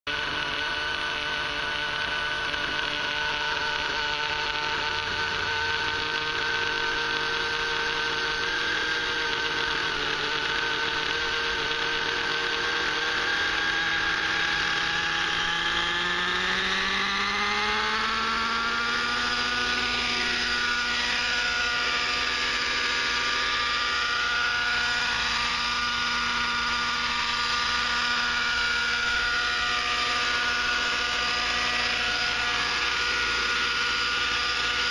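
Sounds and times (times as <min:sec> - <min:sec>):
model helicopter engine whining: 0:00.1 - 0:34.9.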